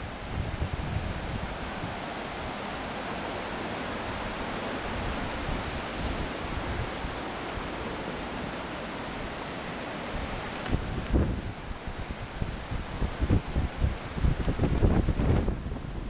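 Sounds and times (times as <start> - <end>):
river rushing: 0.0 - 16.0
wind rumbling on microphone: 0.0 - 16.0.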